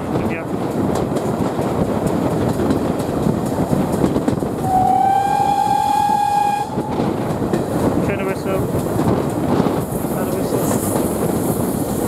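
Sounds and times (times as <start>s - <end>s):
carriages rumbling on track: 0.0s - 12.0s
steam locomotive whistle: 4.6s - 7.0s.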